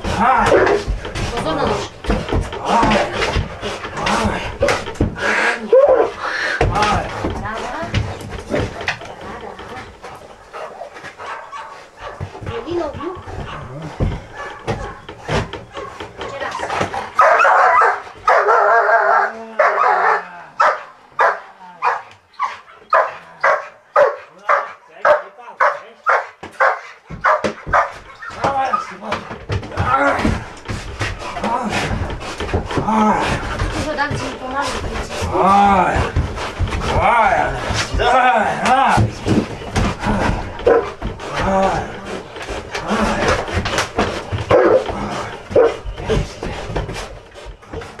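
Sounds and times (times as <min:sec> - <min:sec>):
knocks: 0:00.0 - 0:18.4, 0:26.4 - 0:48.0
dog barking loudly: 0:10.5 - 0:12.4, 0:14.3 - 0:16.0, 0:17.1 - 0:28.9, 0:40.6 - 0:41.0, 0:44.5 - 0:44.9, 0:45.5 - 0:45.8.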